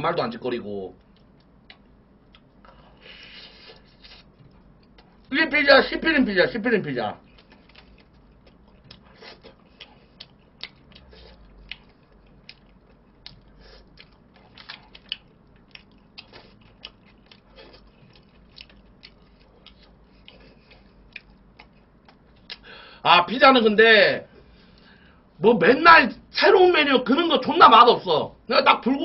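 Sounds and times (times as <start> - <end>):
person chewing: 0.9 - 5.3, 7.2 - 22.7.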